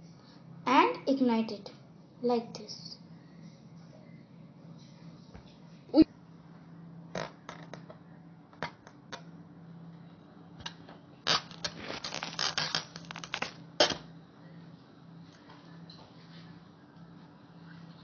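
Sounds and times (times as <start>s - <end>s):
faint steady hum: 0.0s - 18.0s
balloon clicks and rustles: 11.3s - 14.0s.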